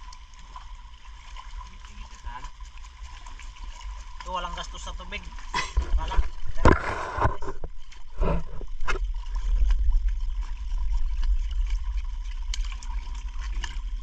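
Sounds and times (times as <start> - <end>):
water sloshing against rocks: 0.0 - 14.0
low microphone rumble: 5.8 - 11.8
knocks and scrapes: 5.8 - 13.8.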